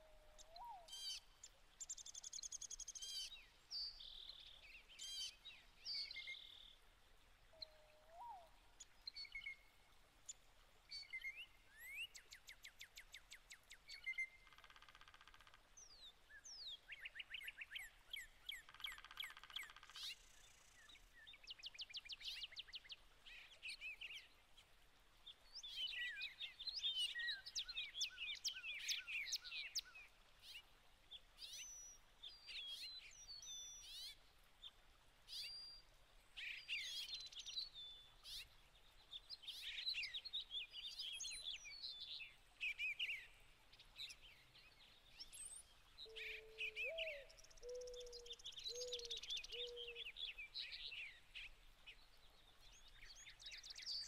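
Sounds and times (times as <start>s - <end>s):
small birds chirping: 44.0s - 54.0s.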